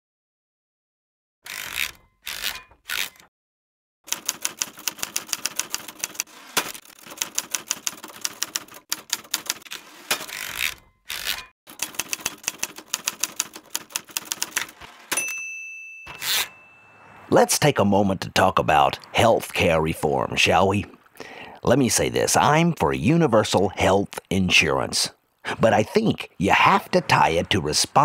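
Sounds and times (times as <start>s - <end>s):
typewriter keys clacking: 4.1s - 15.2s.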